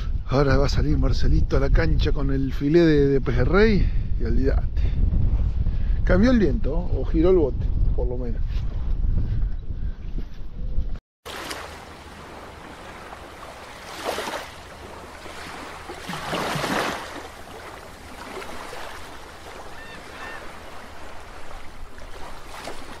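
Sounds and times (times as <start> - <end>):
underwater water noise: 11.3 - 23.0.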